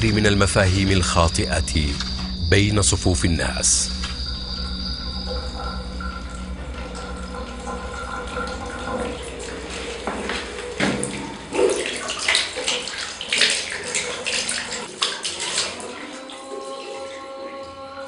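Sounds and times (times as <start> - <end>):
tap water running into sink: 5.2 - 17.5
hands splashing water: 8.9 - 17.3.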